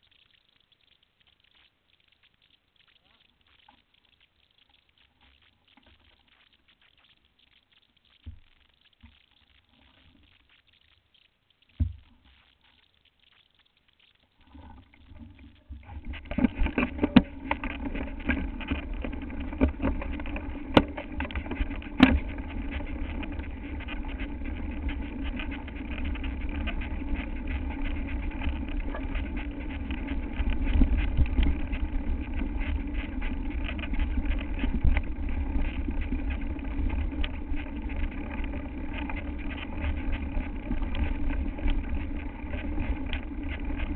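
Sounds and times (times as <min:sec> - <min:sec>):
bike rushing and rattling: 0:15.8 - 0:43.9.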